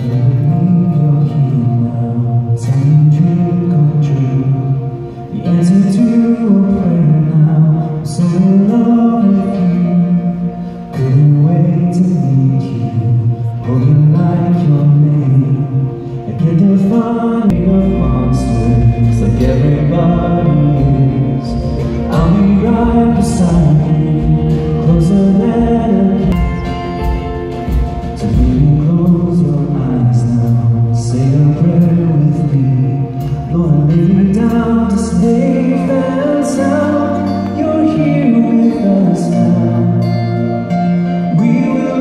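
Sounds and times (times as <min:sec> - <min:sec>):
electric guitar: 0:00.0 - 0:42.0
live band playing worship song: 0:00.0 - 0:42.0
person singing: 0:00.0 - 0:42.0.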